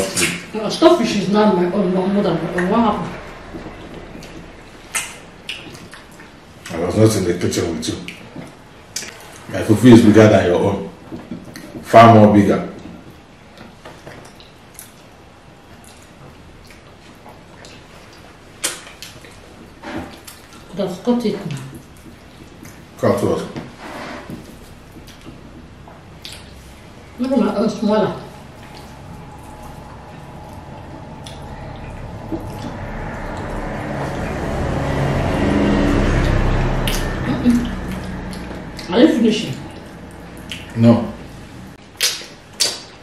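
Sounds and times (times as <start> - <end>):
steady background noise: 0.0 - 43.0
chewing smacks: 13.5 - 20.7, 24.4 - 27.3, 28.4 - 33.5, 39.5 - 40.8, 41.8 - 43.0.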